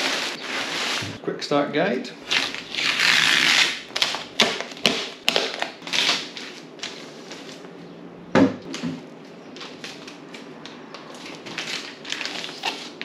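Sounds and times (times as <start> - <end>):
plastic film crinkling: 11.1 - 13.0.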